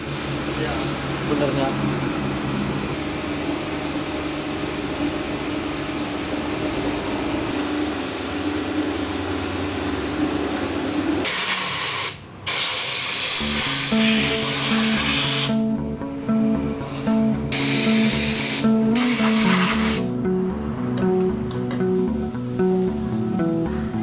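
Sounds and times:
air spray gun hissing: 11.2 - 15.6, 17.5 - 20.1
background music: 13.4 - 24.0.

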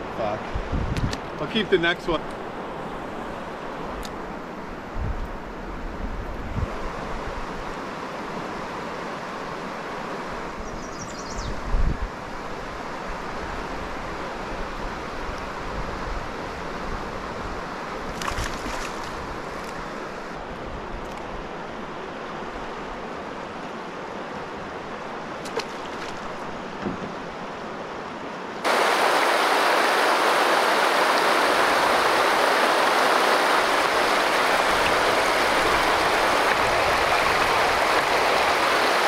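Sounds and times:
dull thump: 26.8 - 27.2
river rapids rushing: 28.6 - 39.0.

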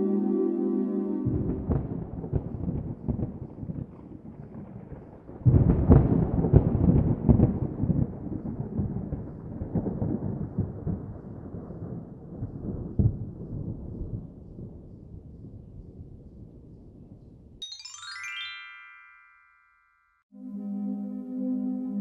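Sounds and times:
wind buffeting microphone: 1.3 - 17.6.

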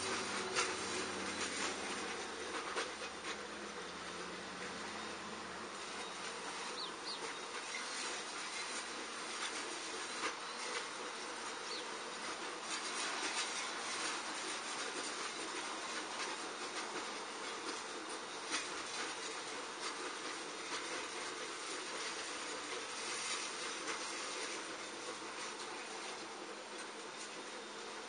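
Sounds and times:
outdoor background hiss: 0.0 - 28.0.

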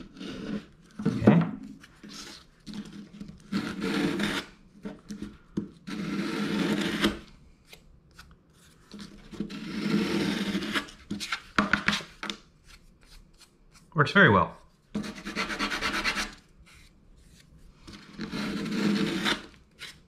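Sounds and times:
wood sanded by hand: 15.0 - 16.4.

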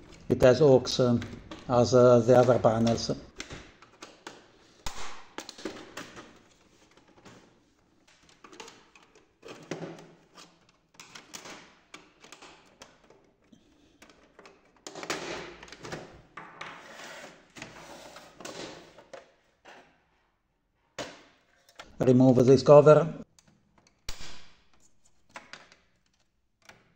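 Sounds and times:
plastic scraping and rattling: 0.0 - 19.9
plastic clicks and scrapes: 0.9 - 19.4.

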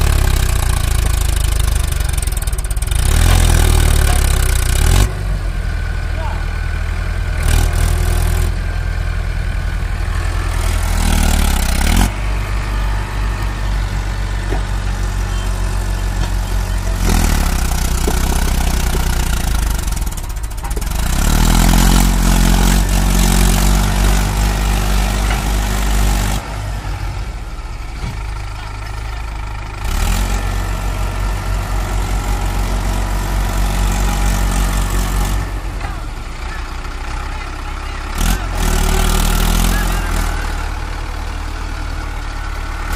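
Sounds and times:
tractor diesel engine labouring: 0.0 - 42.9.

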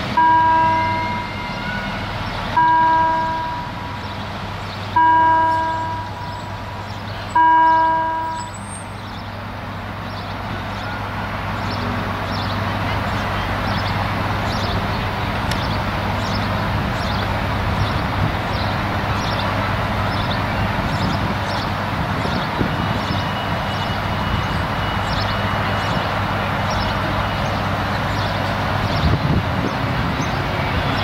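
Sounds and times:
level-crossing warning bell: 0.1 - 4.1, 5.0 - 8.6, 22.4 - 28.8.

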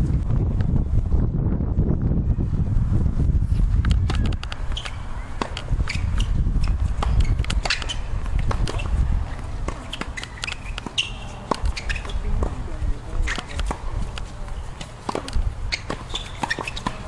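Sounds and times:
wind rumble on microphone: 0.0 - 17.0
tennis ball bounces: 3.9 - 12.6, 13.2 - 17.0
tennis racket strikes: 13.2 - 17.0.

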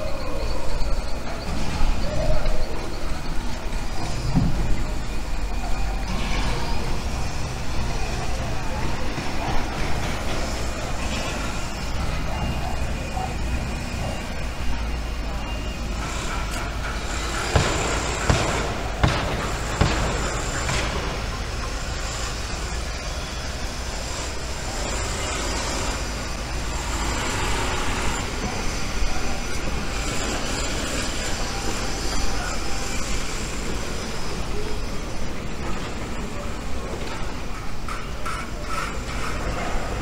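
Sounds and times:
outdoor background rumble: 1.1 - 40.0
sharp knocks: 17.5 - 21.2.

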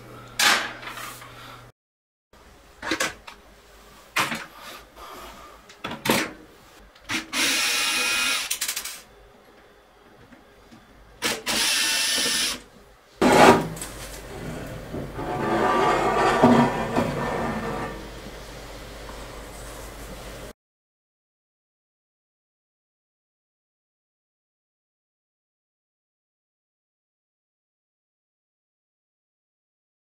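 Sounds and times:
electric screwdriver running: 7.3 - 8.8, 11.2 - 12.6
metal cover scraping clatter: 13.2 - 18.1.

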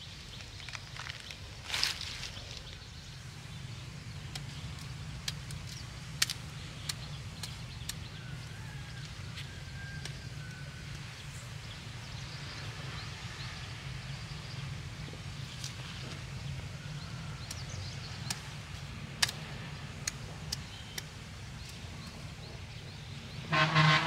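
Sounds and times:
plant stems snapping: 4.2 - 8.1, 19.2 - 21.8.

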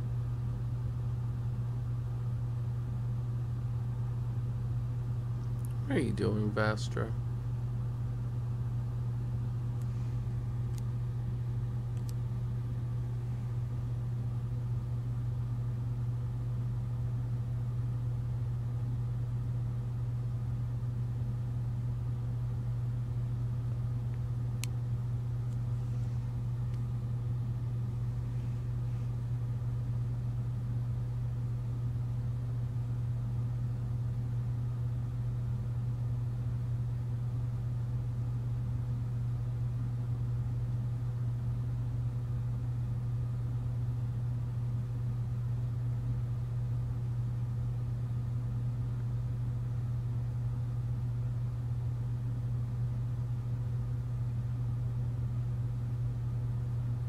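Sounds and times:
low mechanical hum: 0.0 - 57.0
faint click: 11.9 - 12.2, 24.1 - 24.8.

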